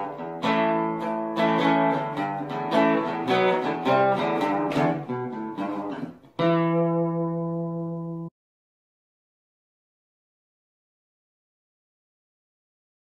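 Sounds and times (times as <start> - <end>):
acoustic guitar music: 0.0 - 8.3.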